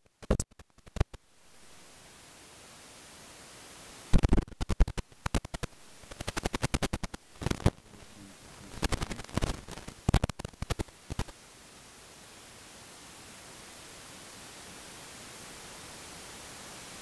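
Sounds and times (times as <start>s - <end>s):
faint steady hiss: 0.0s - 17.0s
sharp rapid clicks: 0.1s - 1.2s, 4.2s - 7.8s, 8.7s - 11.3s.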